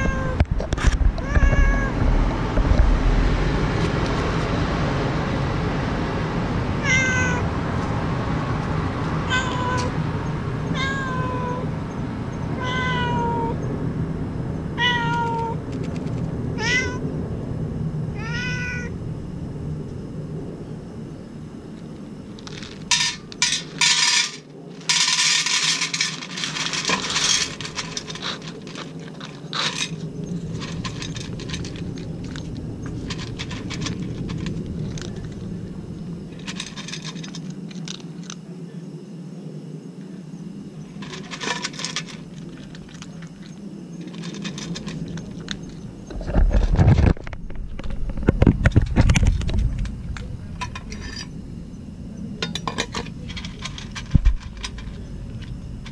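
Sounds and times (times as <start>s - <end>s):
cat meowing: 0.0s - 0.4s, 1.2s - 2.0s, 6.8s - 7.4s, 9.3s - 9.9s, 10.7s - 11.6s, 12.5s - 13.6s, 14.8s - 15.6s, 16.6s - 17.0s, 18.2s - 18.9s
steady low hum: 0.0s - 55.9s
cat crunching dry food: 15.0s - 16.4s, 22.3s - 35.7s, 36.3s - 38.4s, 41.0s - 51.4s, 52.5s - 55.9s
kibble rattling into metal tray: 22.4s - 35.4s, 36.3s - 38.4s, 41.0s - 45.8s, 52.4s - 55.9s.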